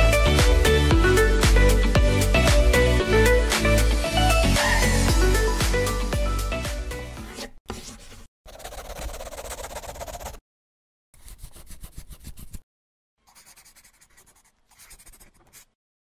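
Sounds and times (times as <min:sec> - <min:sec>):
marker scribbling: 0:07.3 - 0:10.4, 0:11.2 - 0:12.6, 0:13.2 - 0:15.8.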